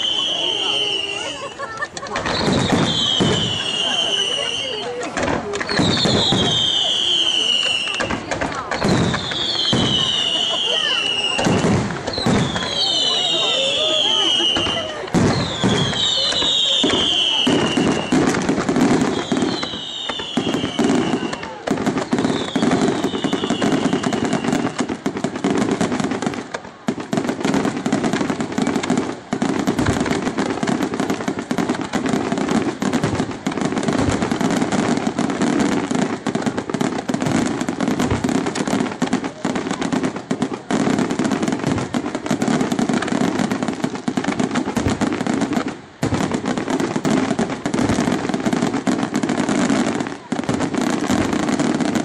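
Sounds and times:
falling firework whistle: 0:00.0 - 0:26.0
fireworks bursting and crackling: 0:00.0 - 0:52.0.

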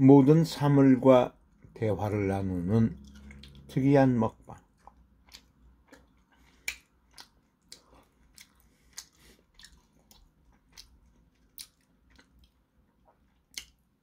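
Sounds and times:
person chewing food: 0:04.5 - 0:14.0.

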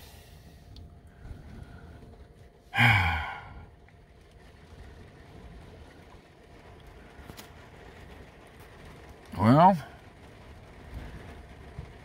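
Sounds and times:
steady rain on a van: 0:00.0 - 0:12.0
man's low vocal sound: 0:02.8 - 0:03.7.

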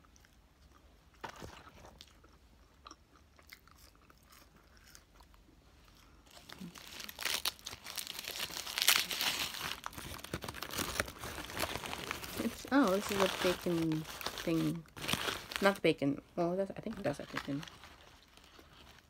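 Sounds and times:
chewing fries: 0:00.0 - 0:14.2
paper wrapper crinkling: 0:06.3 - 0:16.0, 0:16.8 - 0:19.0.

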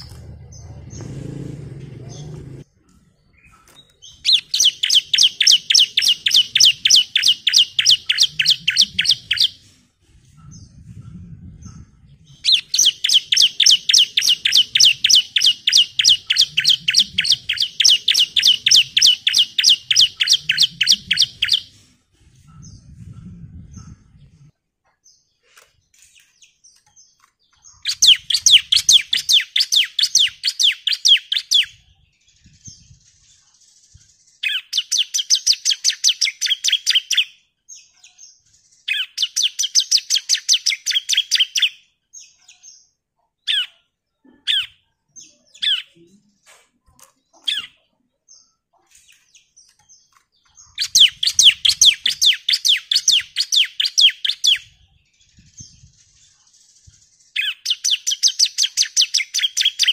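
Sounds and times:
bird singing rapid high notes: 0:03.4 - 0:09.6, 0:12.3 - 0:21.7, 0:27.6 - 0:31.8, 0:50.5 - 0:54.8.

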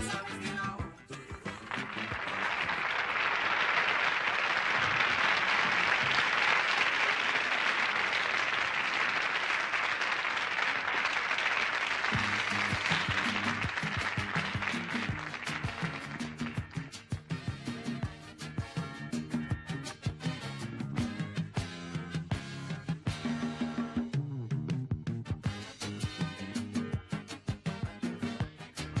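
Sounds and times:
band music: 0:00.0 - 0:03.2, 0:12.0 - 0:29.0
audience applauding: 0:00.0 - 0:17.3
rumba song: 0:00.0 - 0:29.0.

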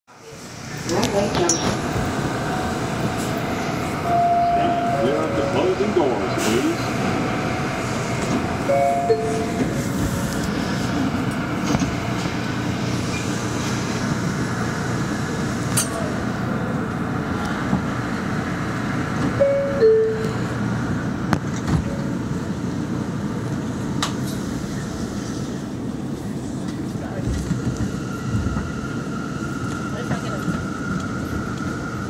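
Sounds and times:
train rumble and hum: 0:00.1 - 0:32.0
descending two-note door chime: 0:04.1 - 0:05.6.

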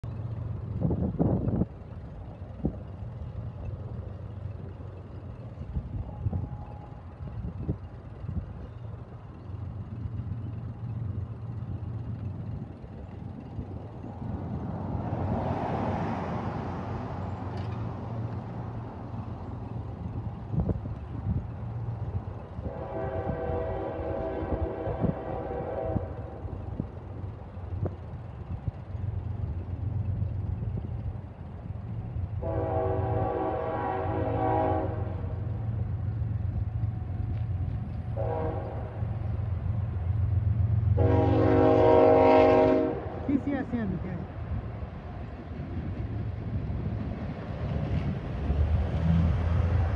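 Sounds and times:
steady low rumble: 0:00.0 - 0:15.4, 0:16.8 - 0:41.2, 0:41.8 - 0:49.9
locomotive air horn blasts: 0:22.6 - 0:26.4, 0:32.4 - 0:35.4, 0:38.1 - 0:39.0, 0:40.9 - 0:43.5.

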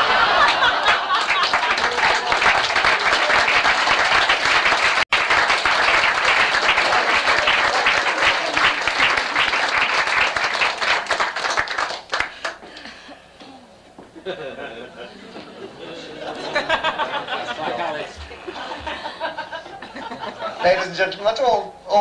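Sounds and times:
audience applauding: 0:00.0 - 0:12.9.

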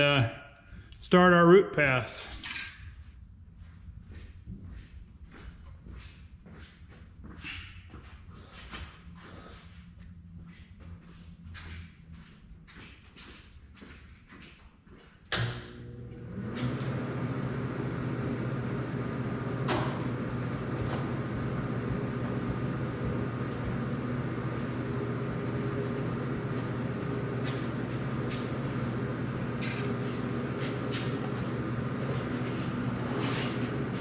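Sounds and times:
welding machine humming: 0:15.7 - 0:34.0.

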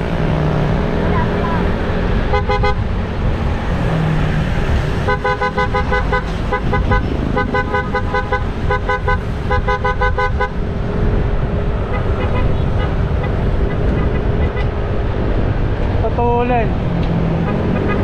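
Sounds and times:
motorcycle engine: 0:00.0 - 0:18.0
wind rush: 0:00.0 - 0:18.0
vehicle horn beeping: 0:02.3 - 0:02.8, 0:05.1 - 0:10.6, 0:11.9 - 0:13.3, 0:17.5 - 0:18.0.

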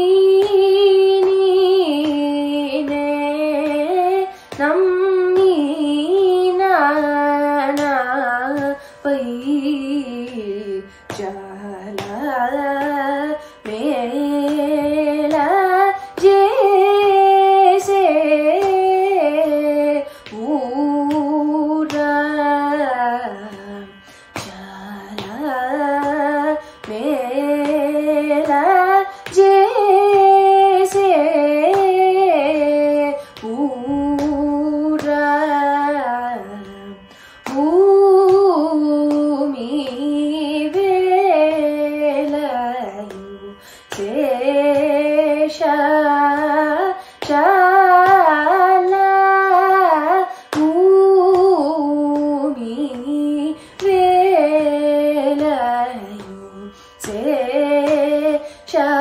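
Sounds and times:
woman singing ornamented phrases: 0:00.0 - 0:59.0
singer breathing: 0:24.0 - 0:24.3, 0:37.1 - 0:37.4, 0:43.6 - 0:43.9.

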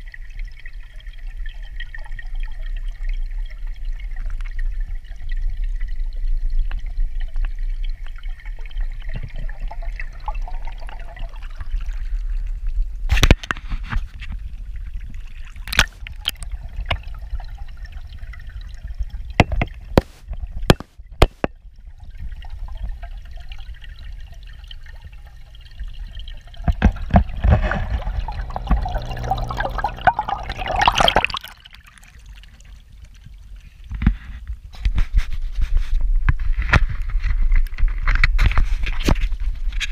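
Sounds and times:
underwater water trickling: 0:00.0 - 0:39.9
churning splash: 0:26.5 - 0:32.8.

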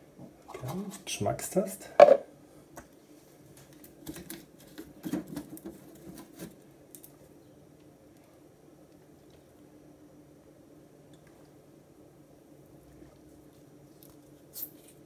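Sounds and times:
glass bottle knocking on metal: 0:02.0 - 0:02.2.

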